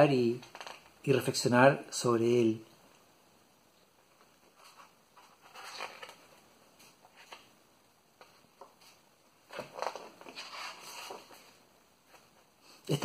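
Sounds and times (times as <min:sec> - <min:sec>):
book pages rustling and flapping: 0:00.4 - 0:01.0, 0:04.0 - 0:13.0.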